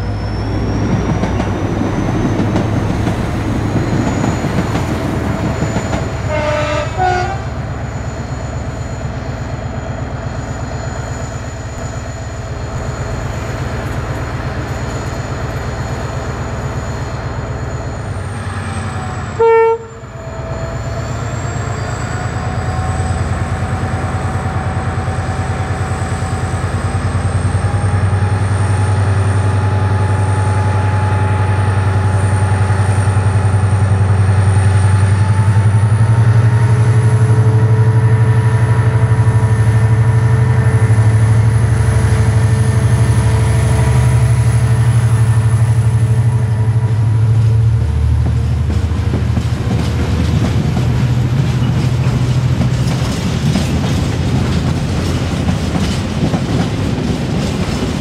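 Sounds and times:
diesel locomotive engine running: 0.0 - 58.0
railcar passing: 0.0 - 58.0
two-tone train horn: 6.1 - 7.6, 19.0 - 20.8
train horn blast: 6.2 - 7.6, 19.3 - 20.7.

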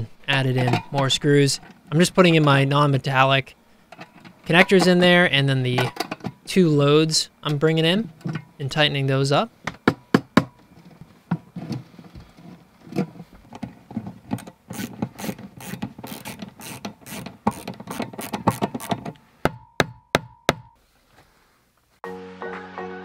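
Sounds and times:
screwdriver clicking on screws: 14.4 - 19.2.

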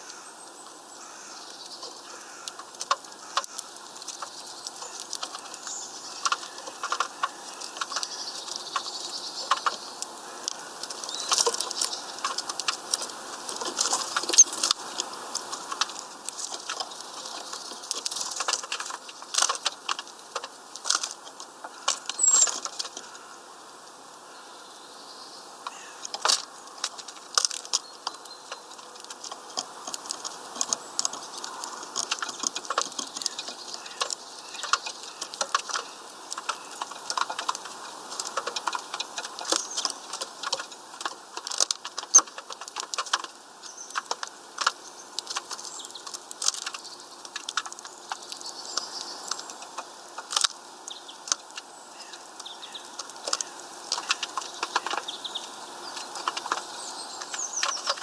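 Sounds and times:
birds tapping on wooden feeder: 0.0 - 23.4, 25.6 - 58.0
faint bird chirps: 21.7 - 23.4.

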